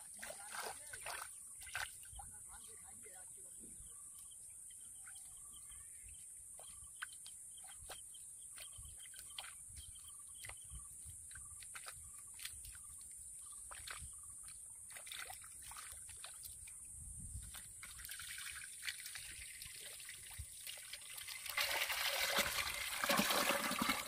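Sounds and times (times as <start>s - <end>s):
small splashes: 0.0s - 2.7s, 6.6s - 10.7s, 11.3s - 16.8s, 17.4s - 24.0s.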